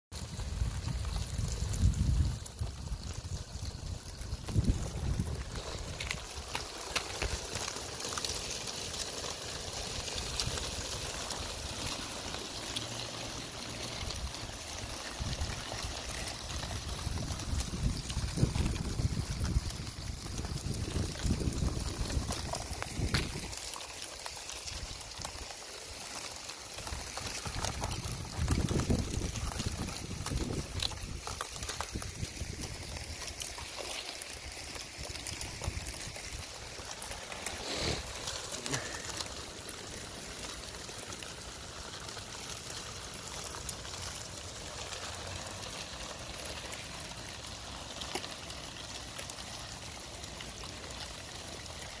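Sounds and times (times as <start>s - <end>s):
wind buffeting microphone: 0.2s - 6.4s, 15.1s - 23.6s, 27.5s - 33.2s
ice crackling and clinking: 0.2s - 52.0s
water trickling: 0.2s - 52.0s.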